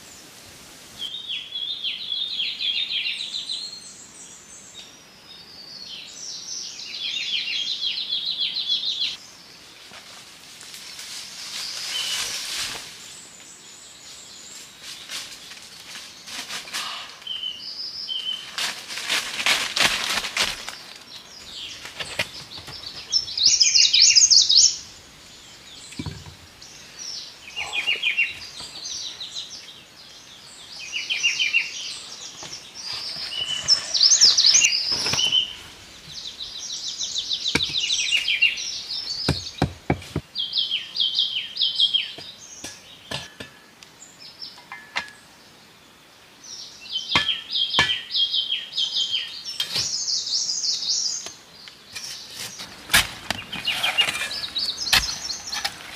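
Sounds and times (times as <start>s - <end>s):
songbirds trilling: 20.6s - 55.9s.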